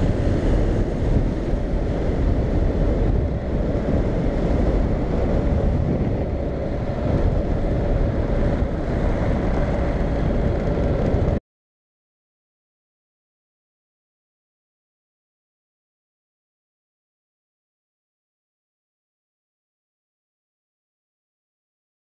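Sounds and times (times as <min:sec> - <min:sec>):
motorcycle engine running: 0:00.0 - 0:11.4
wind rush on microphone: 0:00.0 - 0:11.4.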